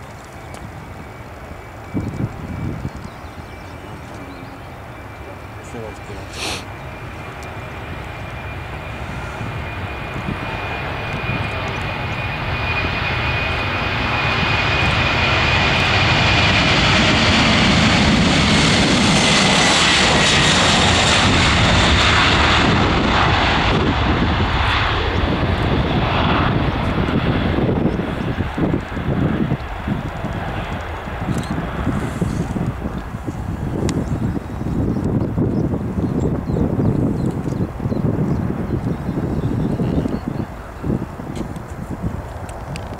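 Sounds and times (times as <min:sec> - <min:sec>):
jet engine roar: 0:00.0 - 0:42.9
high fan whine: 0:00.3 - 0:42.9.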